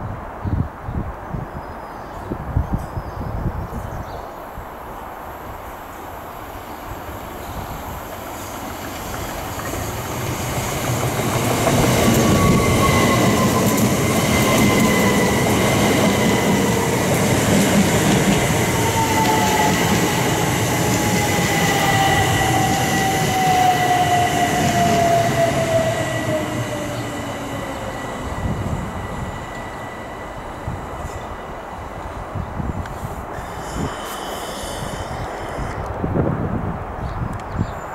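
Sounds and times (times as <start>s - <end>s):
train wheels rumbling on rails: 7.2s - 36.0s
high squeal: 12.2s - 15.4s.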